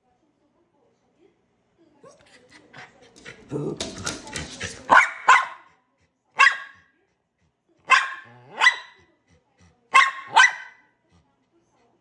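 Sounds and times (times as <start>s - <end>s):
small dog barking: 4.9s - 5.7s, 6.4s - 6.9s, 7.8s - 9.0s, 9.9s - 10.8s.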